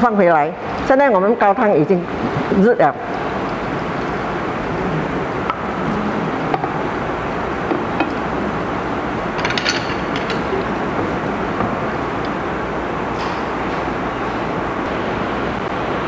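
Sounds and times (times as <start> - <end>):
stock simmering and bubbling: 3.1 - 9.4.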